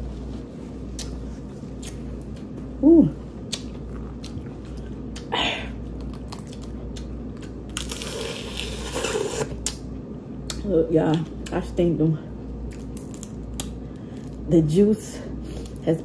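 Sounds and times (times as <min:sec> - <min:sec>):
crawfish shells cracking: 0:12.7 - 0:14.5.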